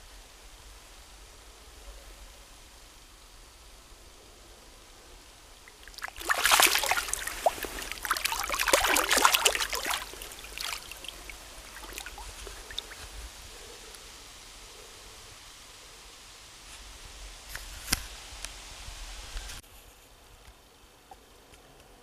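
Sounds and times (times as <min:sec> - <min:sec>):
water trickling: 0:05.6 - 0:13.3
fish splashing in water: 0:05.7 - 0:13.2.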